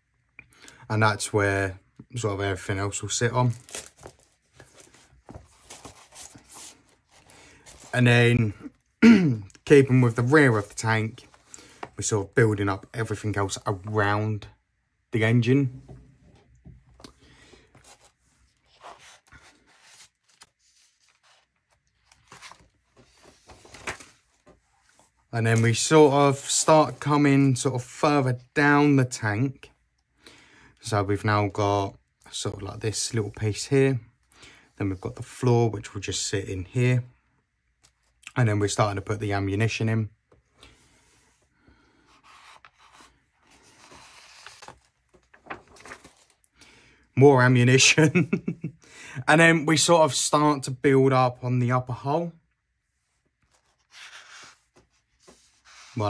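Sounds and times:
paper pages rustling: 3.2 - 8.4, 9.8 - 12.1, 17.0 - 27.2, 42.1 - 46.6, 53.4 - 56.0.

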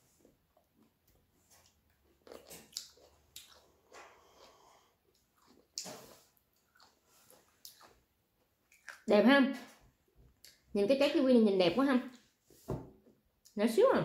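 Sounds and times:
chewing and mouth sounds: 0.5 - 9.1.

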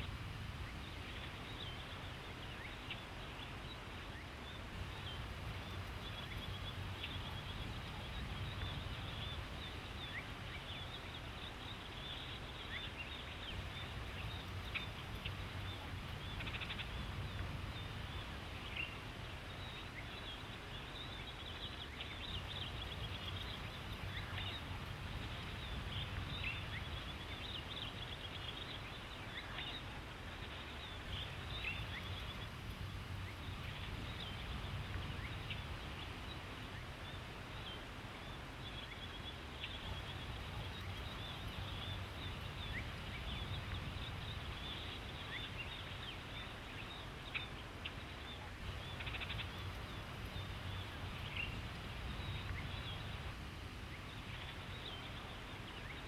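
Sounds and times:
outdoor background noise: 0.0 - 56.0
small birds chirping: 0.0 - 56.0.

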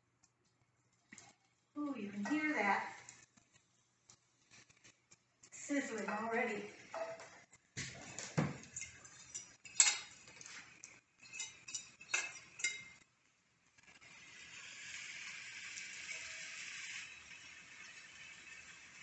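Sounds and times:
fat sizzling in a skillet: 1.2 - 19.0
metal spoon clinking ceramic bowl: 11.2 - 13.0.

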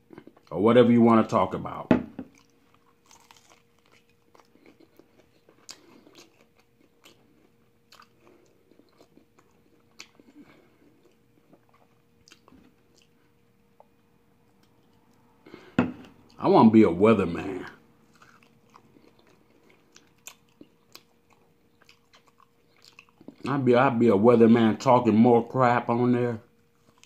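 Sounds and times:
faint steady hum: 0.0 - 27.0
chewing mouth clicks: 7.9 - 13.2.

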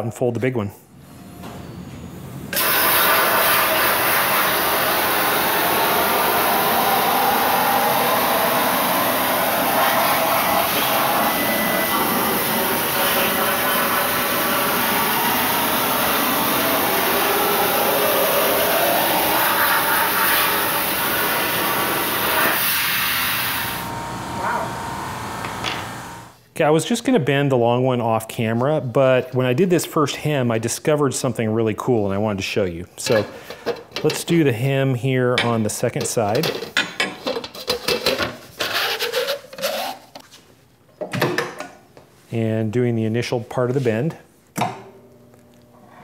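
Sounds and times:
plasma cutter hissing: 2.6 - 23.9.

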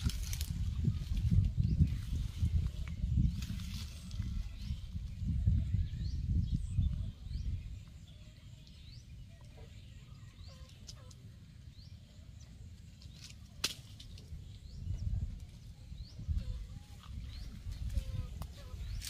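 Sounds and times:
wind rumble on microphone: 0.0 - 12.9, 14.0 - 19.0
small bird chirping: 0.4 - 13.4.

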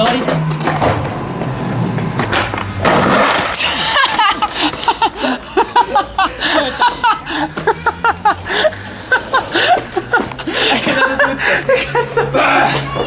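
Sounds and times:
people laughing: 3.6 - 13.0.

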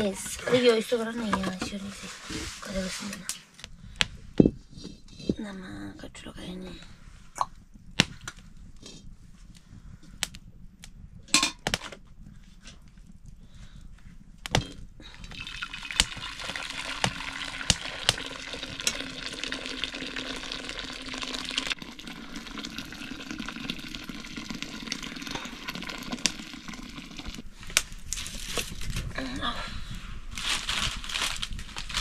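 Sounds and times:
water pouring: 15.2 - 27.4.

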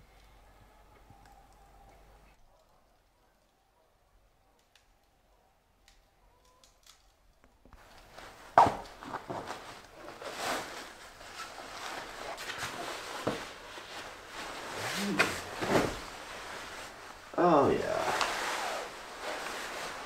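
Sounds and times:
sleeping bag rustling: 7.8 - 20.0.

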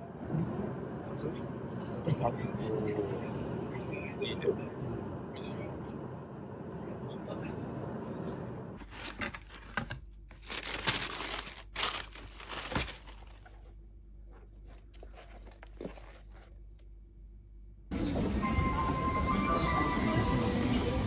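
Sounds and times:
cardboard box opening: 8.8 - 13.6
tissue paper crinkling: 8.8 - 13.8, 14.4 - 16.6.

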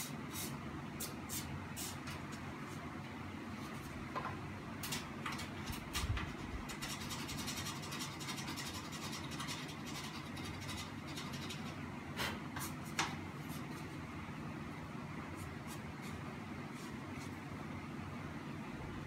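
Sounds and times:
steady low hum: 0.0 - 19.0
clicks and scrapes on fan blades: 3.8 - 13.9.

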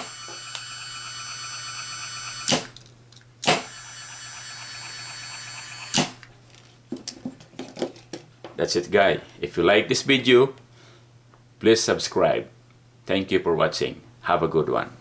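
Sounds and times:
gear motor whining: 0.0 - 2.7, 3.5 - 6.1.

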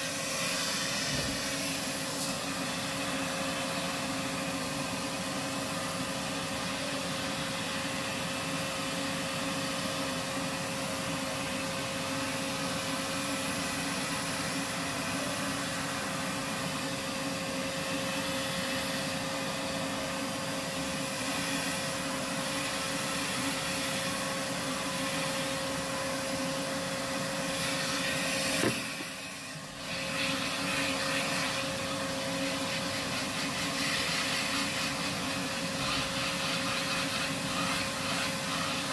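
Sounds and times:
vacuum suction rushing and humming: 10.3 - 33.7.

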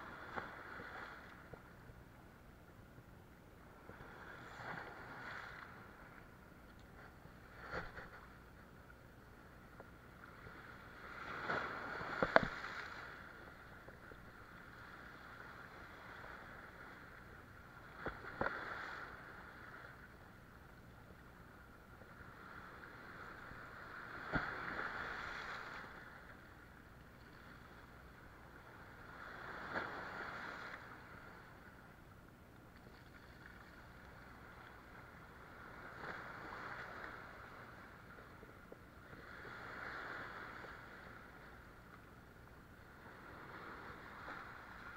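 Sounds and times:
sea waves washing over rocks: 10.4 - 17.2, 22.3 - 26.3, 27.7 - 31.6.

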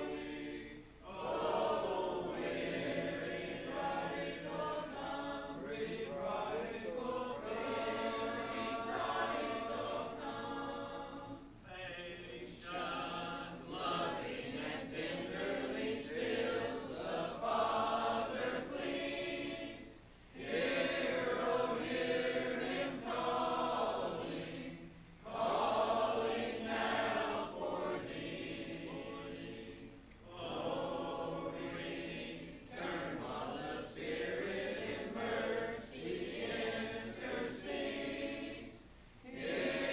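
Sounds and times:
congregation singing a hymn: 0.0 - 39.9.

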